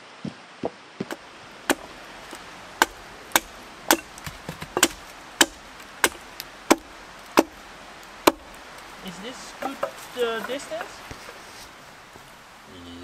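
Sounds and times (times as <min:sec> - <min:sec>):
footsteps on stone path: 0:00.0 - 0:05.2, 0:08.7 - 0:12.4
hatchet chopping wood: 0:01.0 - 0:11.4.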